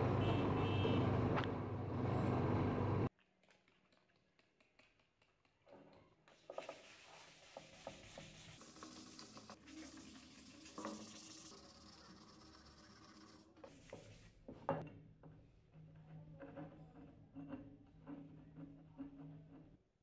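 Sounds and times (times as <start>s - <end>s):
hand-sanding metal tube: 6.3s - 14.4s.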